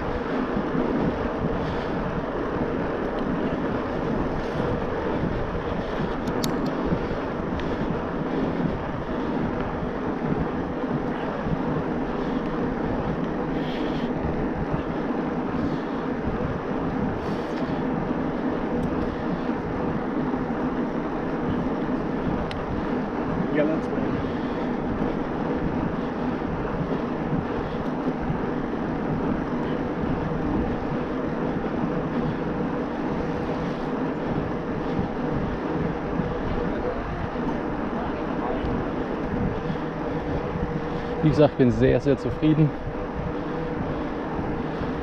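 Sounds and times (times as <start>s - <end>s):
bike riding noise: 0.0s - 45.0s
wind rush: 0.0s - 45.0s
faint ticks: 6.2s - 6.8s.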